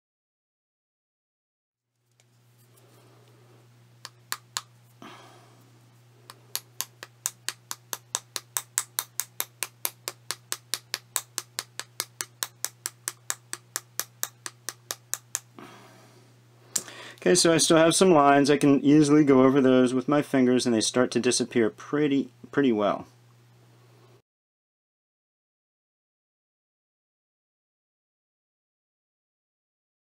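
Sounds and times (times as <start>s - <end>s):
wooden stick tapping clay: 4.0s - 4.7s, 6.3s - 15.6s.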